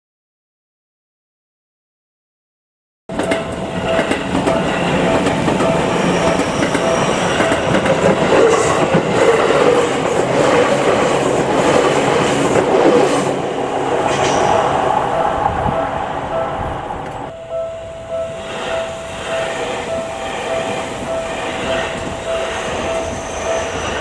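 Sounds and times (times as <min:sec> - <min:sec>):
crossing warning bell ringing: 0:03.1 - 0:11.6, 0:13.4 - 0:24.0
train wheels clattering over rails: 0:03.1 - 0:15.1.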